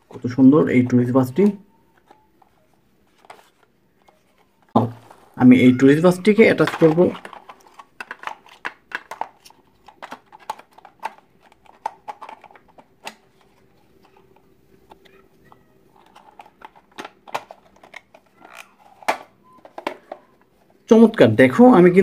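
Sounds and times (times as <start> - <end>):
plastic toy parts clicking: 6.6 - 14.2.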